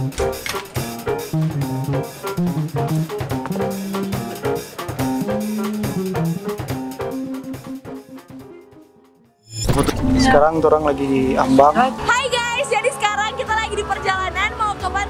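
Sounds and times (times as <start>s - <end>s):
band playing with drums bass guitar: 0.0s - 8.5s.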